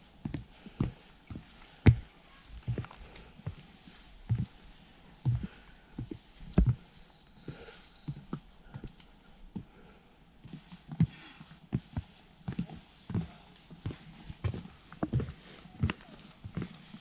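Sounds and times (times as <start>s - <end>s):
footsteps on wooden boardwalk: 0.0s - 17.0s.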